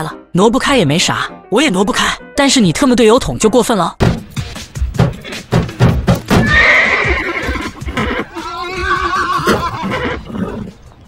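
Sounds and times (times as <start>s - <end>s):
rhythmic thumps: 4.0s - 8.6s
horse whinny: 6.4s - 10.8s.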